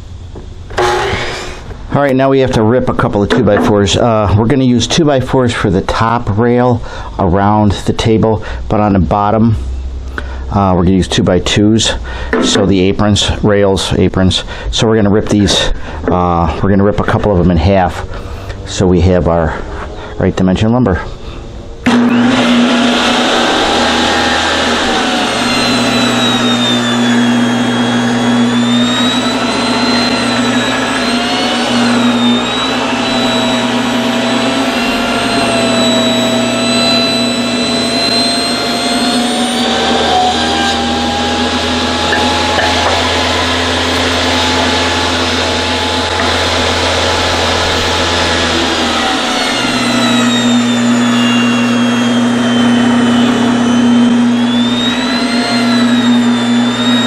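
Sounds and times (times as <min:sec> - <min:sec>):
table saw ripping wood: 0:00.7 - 0:01.8, 0:21.8 - 0:57.0.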